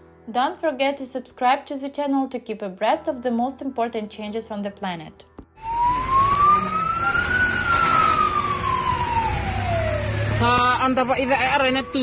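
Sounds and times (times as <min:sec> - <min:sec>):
road traffic rumble: 0:05.6 - 0:12.0
siren wailing: 0:05.6 - 0:12.0.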